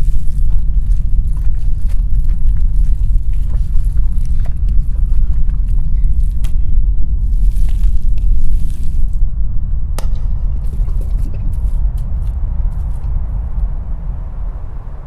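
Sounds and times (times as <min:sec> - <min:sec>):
faint clicks and crackles: 0:00.0 - 0:09.2
deep steady rumble: 0:00.0 - 0:15.0.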